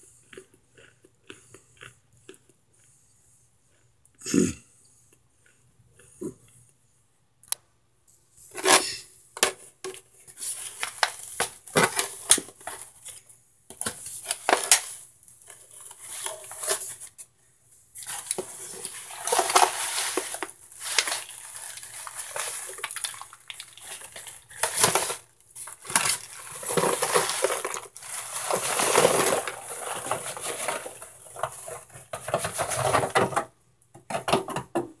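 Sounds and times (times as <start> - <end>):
clattering and crunching in foil pan: 8.5 - 17.3, 18.0 - 34.7.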